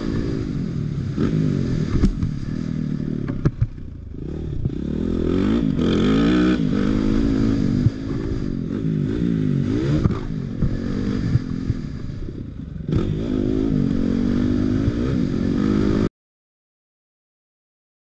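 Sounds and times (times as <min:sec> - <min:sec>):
dirt bike engine revving: 0:00.0 - 0:16.1
bike knocking and rattling: 0:03.2 - 0:04.0.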